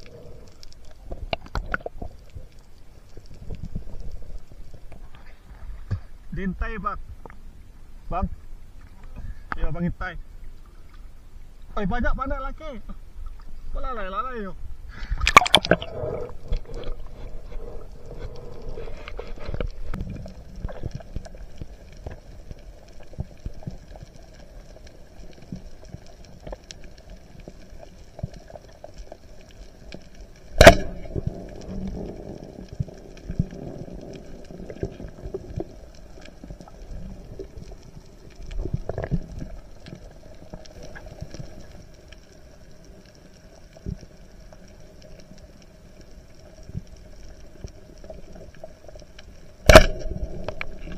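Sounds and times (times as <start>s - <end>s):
faint crackling: 0.0s - 50.9s
faint steady hum: 0.0s - 50.9s
low underwater rumble: 14.6s - 50.9s
splash into water: 15.2s - 15.9s.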